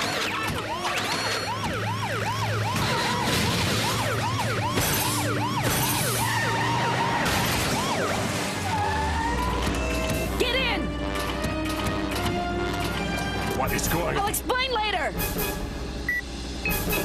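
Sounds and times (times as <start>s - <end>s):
police sirens yelping: 0.0s - 11.4s.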